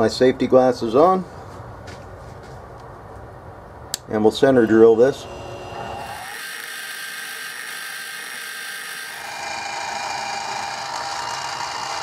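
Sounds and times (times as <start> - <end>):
drill cutting steel: 4.6 - 12.0
mill spindle motor whine: 4.6 - 12.0.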